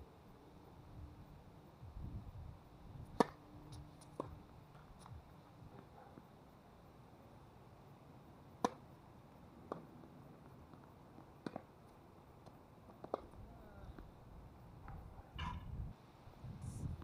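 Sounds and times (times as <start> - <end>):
tennis ball hit with rackets: 3.2 - 3.4, 8.6 - 8.8, 11.4 - 11.7.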